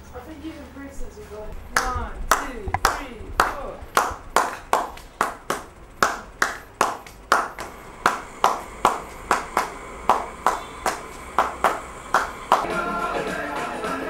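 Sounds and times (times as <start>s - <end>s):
hands clapping: 1.8s - 12.8s.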